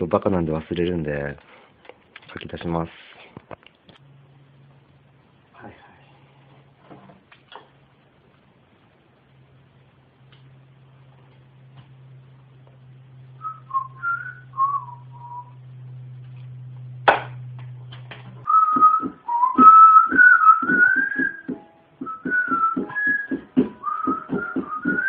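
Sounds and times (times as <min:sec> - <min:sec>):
person whistling: 0:13.4 - 0:15.5, 0:18.5 - 0:25.0
background music with regular beat: 0:18.8 - 0:25.0.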